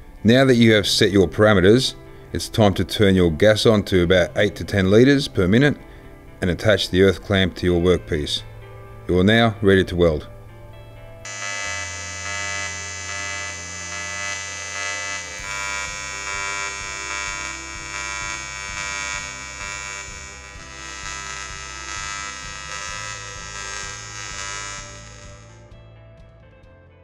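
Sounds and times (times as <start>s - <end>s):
welding arc buzzing: 11.2s - 25.7s.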